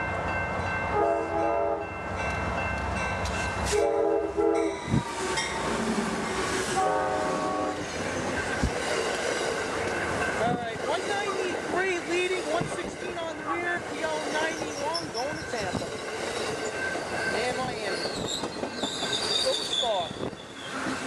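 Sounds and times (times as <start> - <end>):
train horn blasts: 0.9 - 1.9, 3.7 - 5.1, 6.7 - 7.8
train wheels clacking on rails: 4.8 - 21.0.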